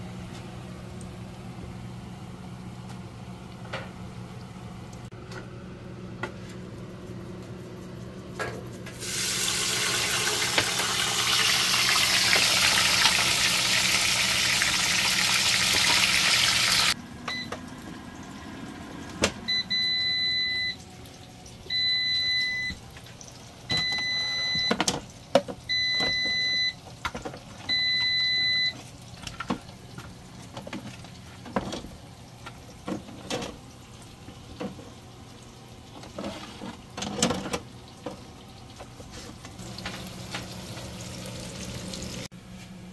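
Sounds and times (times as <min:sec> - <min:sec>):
air fryer beeping: 0:08.9 - 0:23.0, 0:23.6 - 0:28.8.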